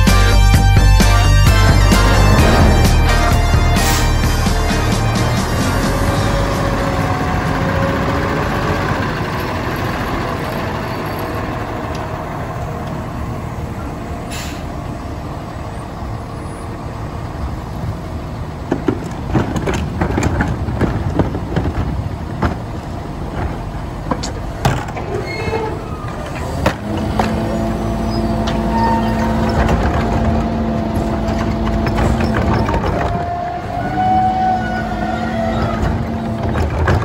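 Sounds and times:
garbage truck engine running: 0:00.0 - 0:37.0
plastic carts knocking and clattering: 0:18.7 - 0:25.2, 0:29.3 - 0:33.3, 0:35.6 - 0:37.0.

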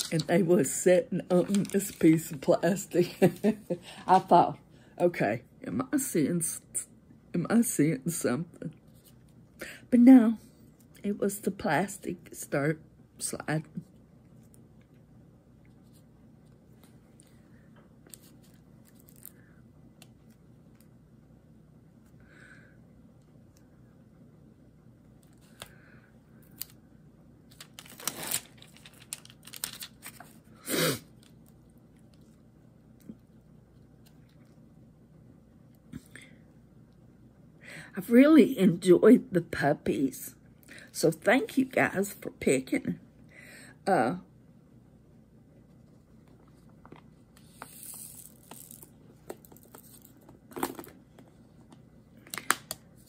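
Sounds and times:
plastic crinkling: 0:00.0 - 0:00.5, 0:01.2 - 0:02.4, 0:27.5 - 0:30.5
plastic beads rattling: 0:47.5 - 0:50.8.

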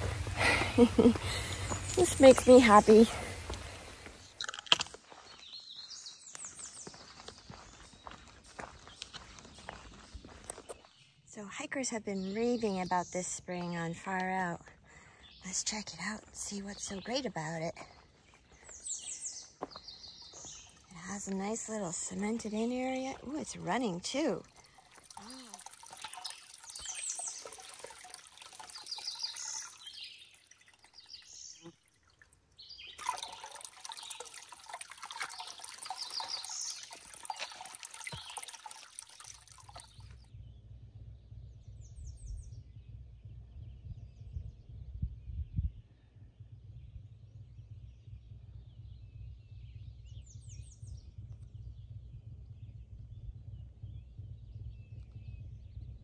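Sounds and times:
low steady rumble: 0:00.0 - 0:04.3, 0:11.2 - 0:31.5, 0:39.4 - 0:56.0
birds chirping: 0:00.0 - 0:56.0
water pouring into stone basin: 0:20.1 - 0:40.2.

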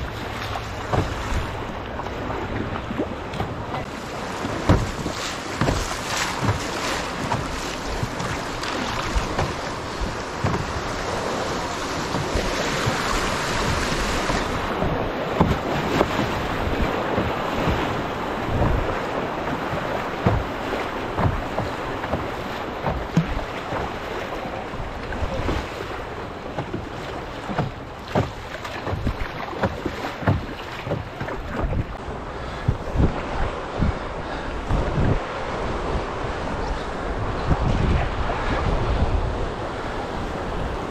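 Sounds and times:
knocks and splashes: 0:00.0 - 0:39.1
river water rushing against canoe: 0:00.0 - 0:40.9
wind on microphone: 0:00.0 - 0:40.9.

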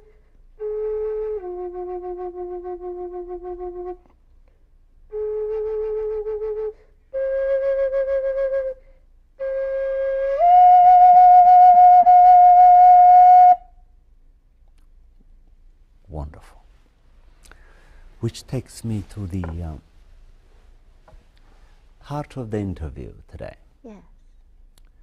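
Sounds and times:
wooden flute solo: 0:00.6 - 0:04.2, 0:05.1 - 0:13.8.

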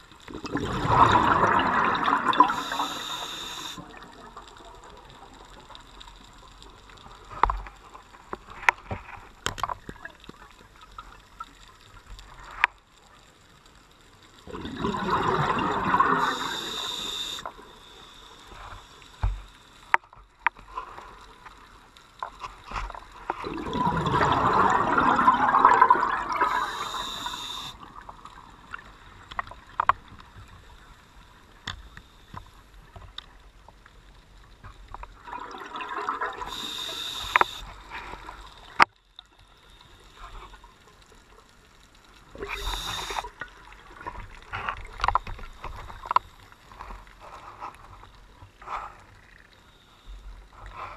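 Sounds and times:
bubbling exhalation: 0:00.3 - 0:02.8, 0:14.5 - 0:16.5, 0:23.4 - 0:26.9
diver breathing through regulator: 0:02.4 - 0:03.9, 0:15.9 - 0:19.2, 0:26.3 - 0:27.8, 0:36.4 - 0:38.2, 0:42.4 - 0:43.3.

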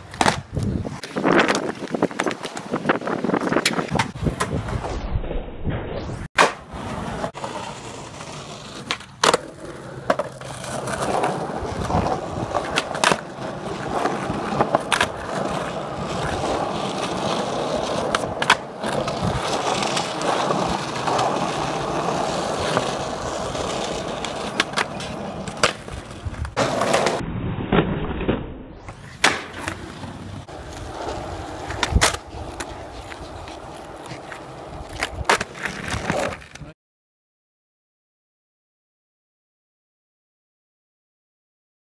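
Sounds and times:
skateboard wheels rolling on pavement: 0:00.0 - 0:05.4, 0:06.4 - 0:36.8
skateboard clacking: 0:06.4 - 0:27.2, 0:29.1 - 0:36.7.

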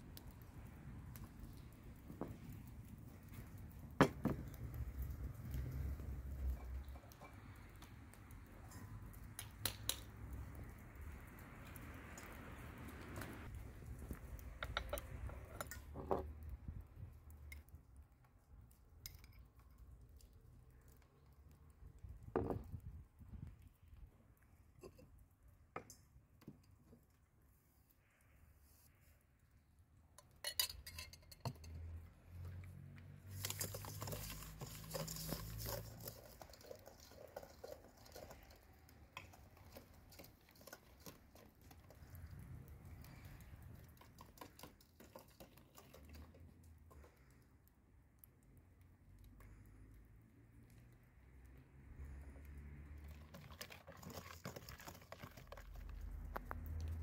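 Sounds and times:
spoon and bowls clinking: 0:30.4 - 0:31.9.

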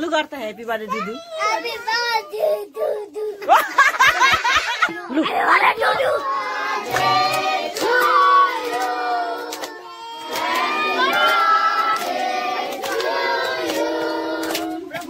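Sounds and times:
children singing: 0:05.6 - 0:15.0
hands clapping in time: 0:06.9 - 0:15.0.

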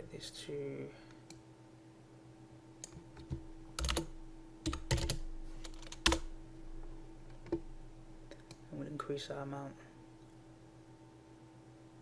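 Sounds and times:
faint steady hum: 0:00.0 - 0:12.0
keyboard keys tapping: 0:02.8 - 0:06.2.

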